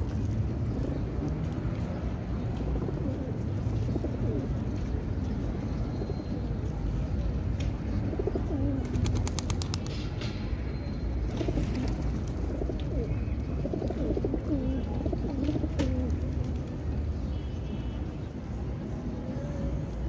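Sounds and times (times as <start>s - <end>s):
pigeons cooing: 2.7s - 4.6s, 8.0s - 9.4s, 11.4s - 16.4s.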